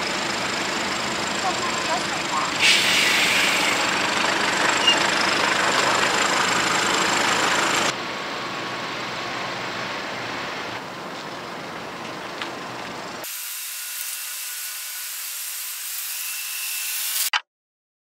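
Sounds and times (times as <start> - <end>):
distant truck engine running: 0.0 - 13.2
outdoor noise: 0.0 - 17.5.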